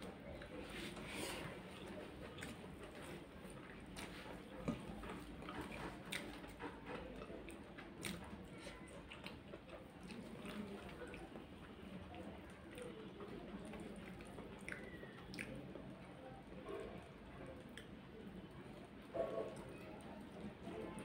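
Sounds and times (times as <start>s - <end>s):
person chewing: 3.6s - 6.6s.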